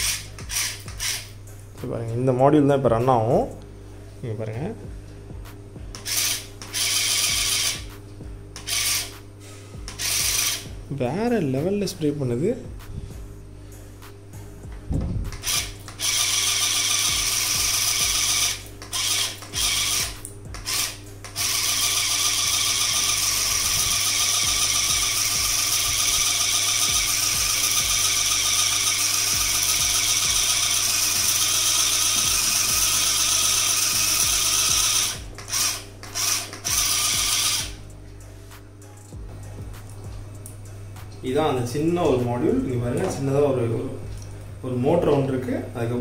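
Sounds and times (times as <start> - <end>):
small electric pump motor running: 0.0 - 1.2, 6.0 - 7.9, 8.6 - 9.1, 9.9 - 10.7, 15.4 - 37.8.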